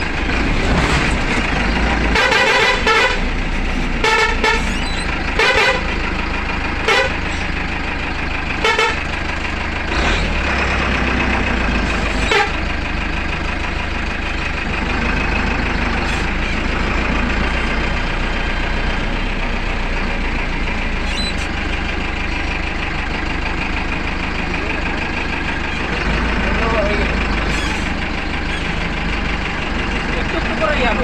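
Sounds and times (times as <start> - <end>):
bus engine running: 0.0 - 31.0
short horn toots: 2.1 - 3.3, 4.0 - 5.9, 6.8 - 7.3, 8.6 - 9.0, 12.1 - 12.6.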